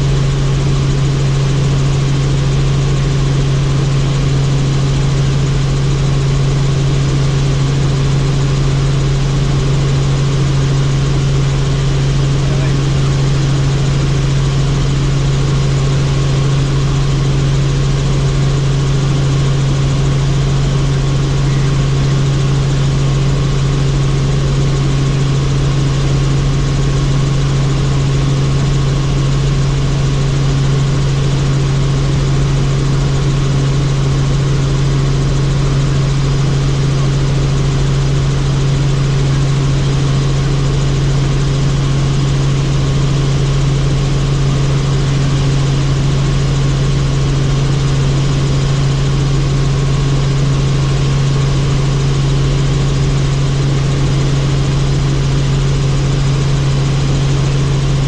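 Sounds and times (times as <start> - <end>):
helicopter engine and rotors droning: 0.0 - 58.0.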